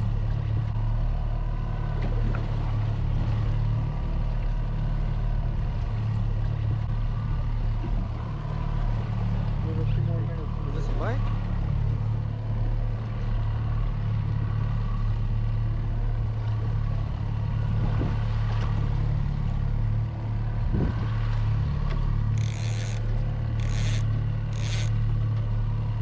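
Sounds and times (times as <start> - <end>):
boat motor humming: 0.0 - 26.0.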